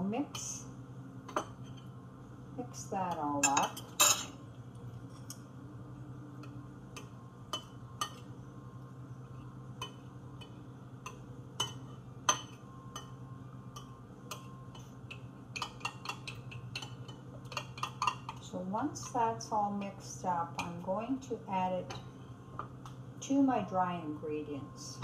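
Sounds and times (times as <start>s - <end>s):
fork clinking against ceramic bowl: 9.8s - 18.4s.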